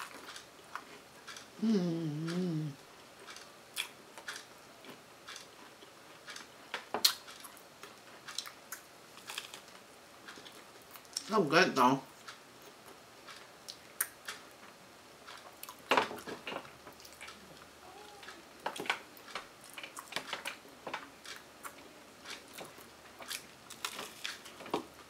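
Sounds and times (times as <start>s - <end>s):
crisp crunches of eating: 0.0s - 1.5s, 3.3s - 11.3s, 19.6s - 24.9s.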